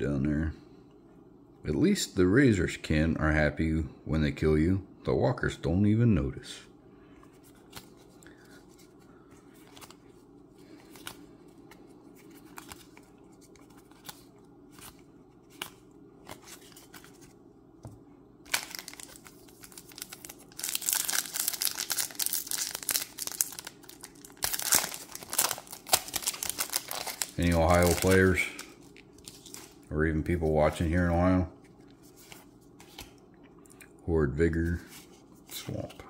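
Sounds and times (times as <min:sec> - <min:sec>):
foil wrapper tearing and crinkling: 0:18.5 - 0:29.8.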